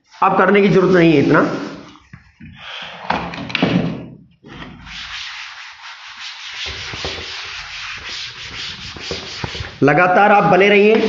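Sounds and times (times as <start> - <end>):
cloth rubbing chalkboard: 0.0 - 2.7, 4.5 - 9.9.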